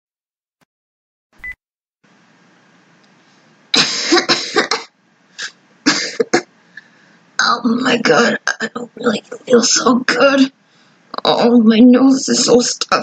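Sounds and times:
person coughing: 3.8 - 6.5.

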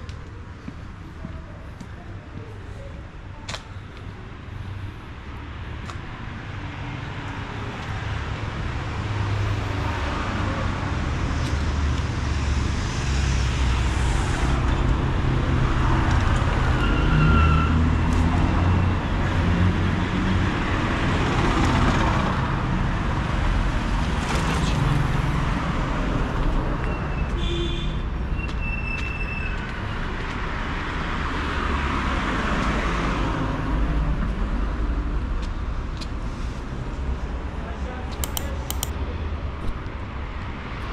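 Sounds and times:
cars passing: 0.0 - 26.9
low traffic rumble: 0.0 - 40.9.

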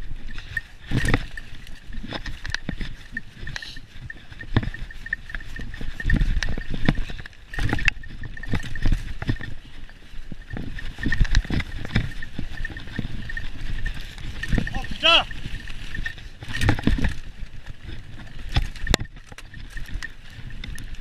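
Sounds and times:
mountain bike rattling on trail: 0.0 - 21.0.

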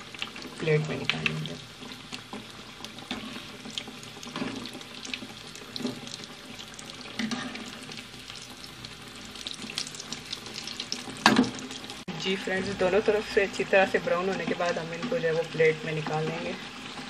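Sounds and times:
metal spoon stirring oil: 0.0 - 8.5, 12.3 - 17.0
food sizzling in hot oil: 0.0 - 17.0.

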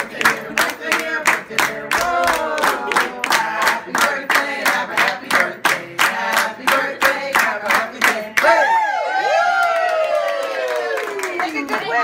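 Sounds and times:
group singing birthday song: 0.0 - 8.8
people clapping along: 0.0 - 12.0.

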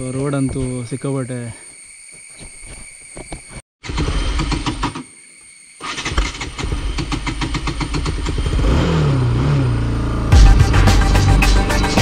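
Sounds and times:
motorcycle engine idling and revving: 3.8 - 5.1, 5.8 - 12.0.

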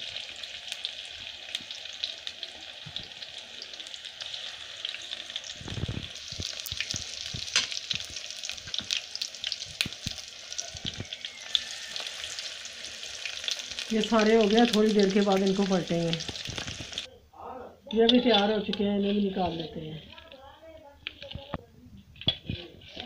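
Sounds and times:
food deep-frying in hot oil: 0.0 - 17.1.

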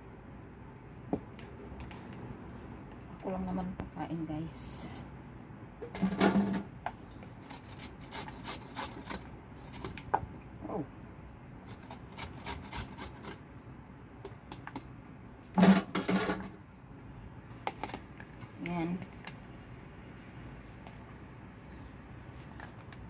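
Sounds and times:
vegetable grated on metal grater: 7.4 - 9.9, 11.6 - 13.4.

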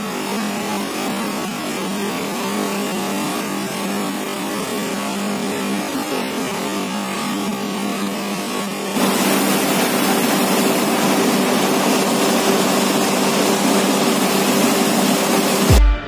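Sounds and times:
electronic music with heavy beat: 11.2 - 16.0.

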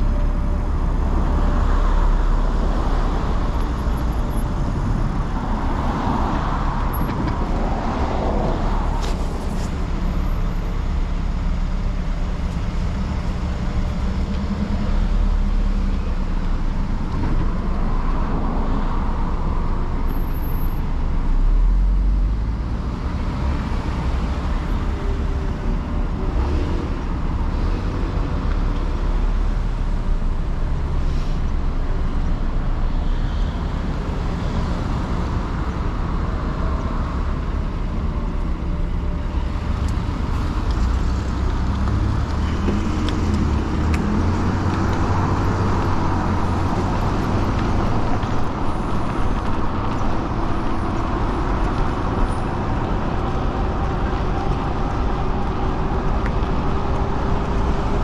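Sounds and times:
cars and trucks idling: 0.0 - 58.0
vehicles driving through: 0.0 - 58.0.

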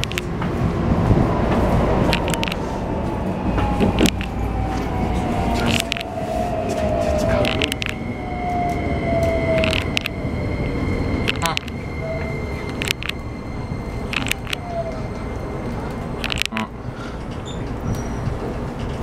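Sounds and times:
train rumbling: 0.0 - 19.0
wheels clicking on rails: 0.0 - 19.0
train motors whining: 1.5 - 18.2
steady high tone: 1.7 - 18.3.

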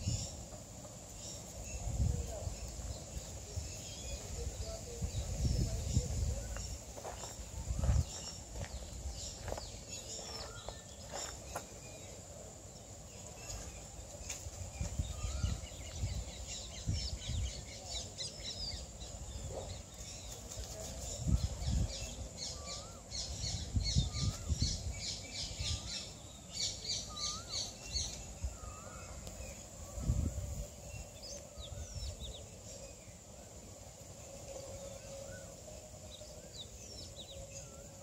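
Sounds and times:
low wind rumble on microphone: 0.0 - 0.5, 1.6 - 10.6, 14.4 - 26.0, 27.9 - 33.2
small birds chirping: 0.0 - 38.0.

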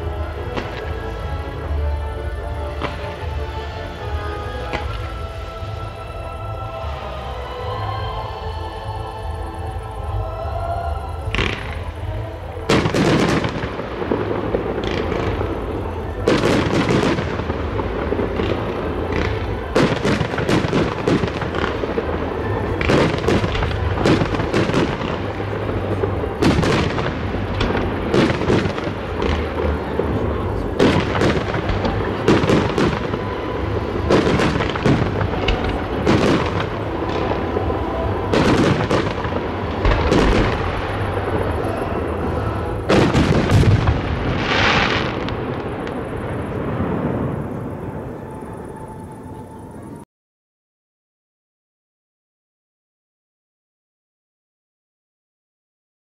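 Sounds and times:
firework shells booming: 11.2 - 48.6.

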